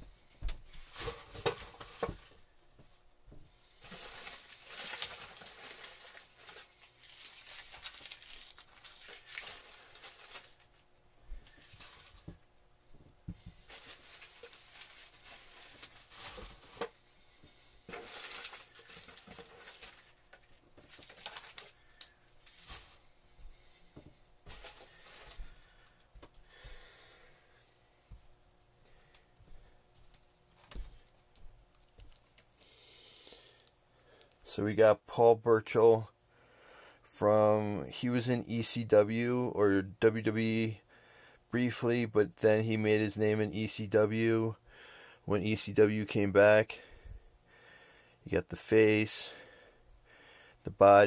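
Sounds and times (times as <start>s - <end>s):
plastic packing crinkling: 3.8s - 12.4s, 13.5s - 16.9s, 17.9s - 23.0s, 24.4s - 26.0s.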